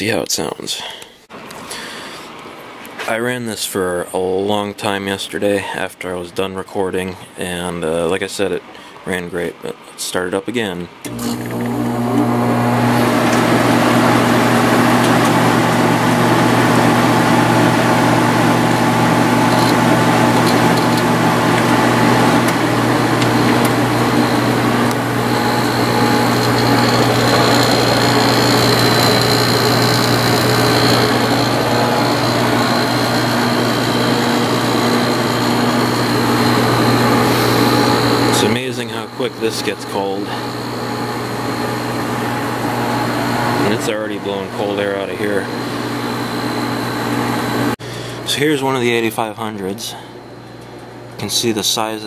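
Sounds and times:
compressor hum: 11.0 - 52.0
high whine: 11.1 - 49.9
fan blowing air: 11.1 - 52.0.

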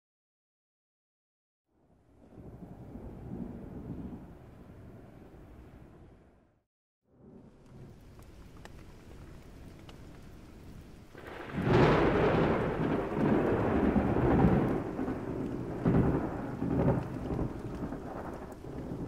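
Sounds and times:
rain: 1.8 - 6.4, 7.1 - 19.0
thunder rumbling: 2.1 - 6.4, 7.1 - 19.0
thunder crack: 11.0 - 19.0.

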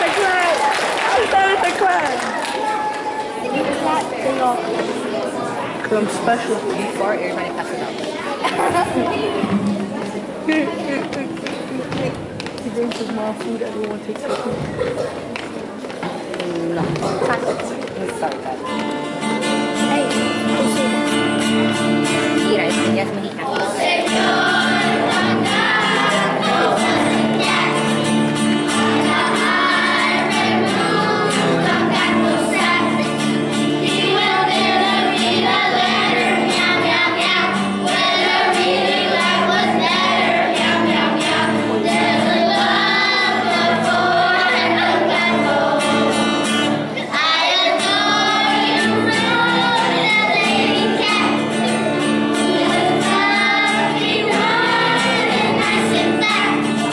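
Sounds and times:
strummed acoustic guitar: 5.9 - 12.3, 16.8 - 56.9
children singing together: 23.4 - 56.9.

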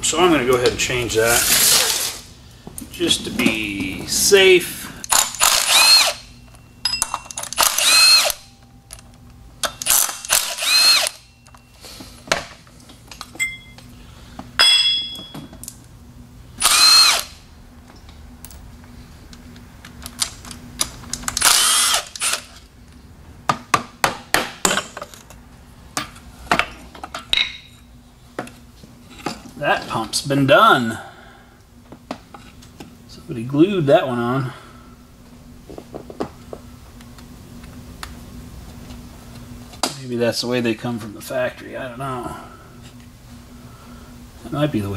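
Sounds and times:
cordless power tool spinning: 5.1 - 6.3, 7.5 - 8.5, 9.8 - 11.3, 16.6 - 17.4, 21.4 - 22.5.

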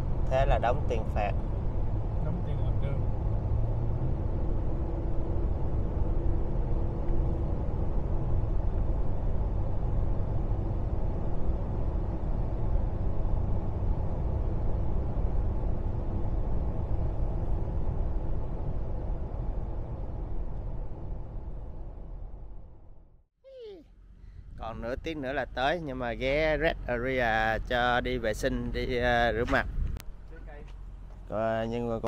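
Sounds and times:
road and engine noise in cab: 0.0 - 32.0.

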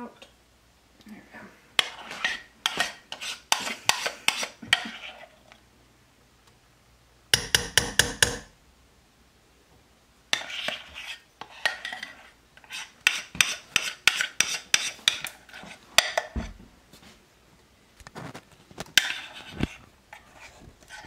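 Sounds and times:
spoon scraping and clinking: 1.8 - 5.4, 10.4 - 16.4
spoon tapping against a bowl: 7.3 - 8.5.

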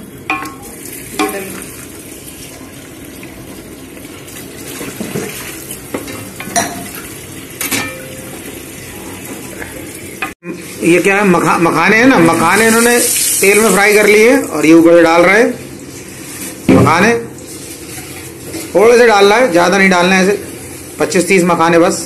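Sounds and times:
gravy sizzling in a pan: 0.0 - 14.4
water pouring: 0.5 - 6.0, 11.9 - 14.4.

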